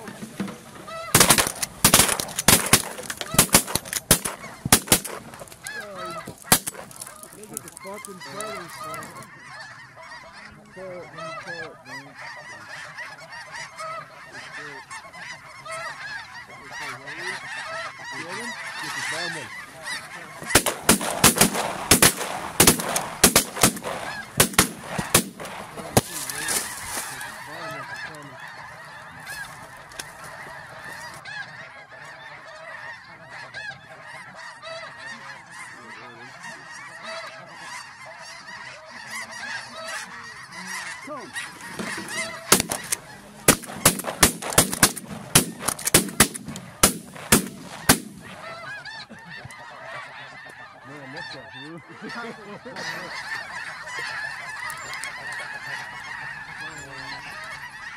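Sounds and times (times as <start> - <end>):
geese honking: 0.0 - 57.9
loud sharp cracks and pops: 1.2 - 9.0, 20.4 - 27.1, 42.5 - 48.4.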